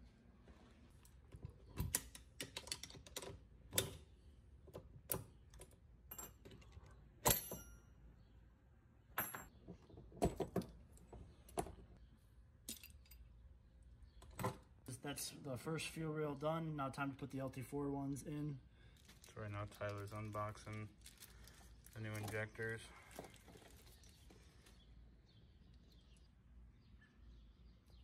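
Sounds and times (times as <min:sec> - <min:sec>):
metal parts clicking and clinking: 0:01.8 - 0:04.0.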